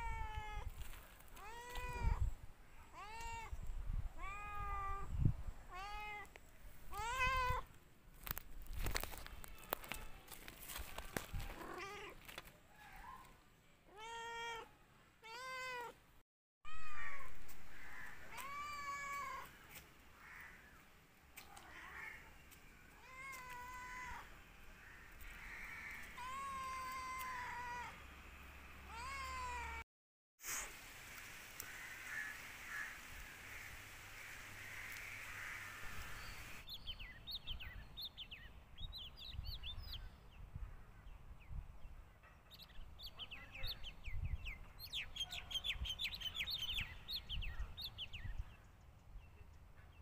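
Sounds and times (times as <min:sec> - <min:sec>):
cat meowing: 0:01.4 - 0:02.2, 0:02.9 - 0:03.6, 0:04.2 - 0:05.1, 0:05.7 - 0:06.3, 0:06.9 - 0:07.6, 0:11.5 - 0:12.2, 0:13.9 - 0:16.0, 0:18.3 - 0:19.5, 0:23.0 - 0:24.2, 0:26.2 - 0:28.0, 0:28.9 - 0:29.8.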